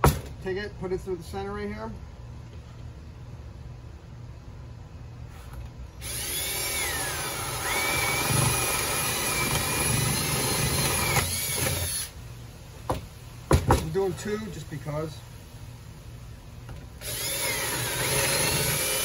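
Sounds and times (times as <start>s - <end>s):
cordless drill boring wood: 6.0s - 12.1s, 17.0s - 19.0s.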